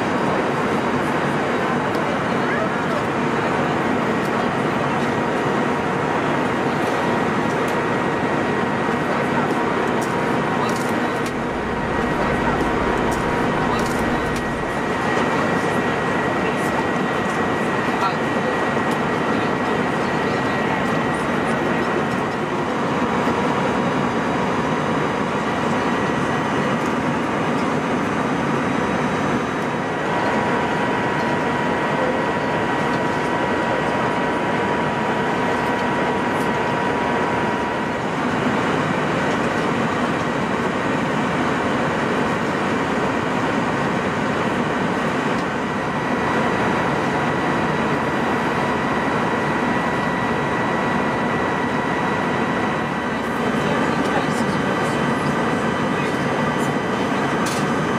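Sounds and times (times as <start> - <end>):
engine and airflow rush: 0.0 - 57.9
high-pitched whine tones: 10.6 - 16.6.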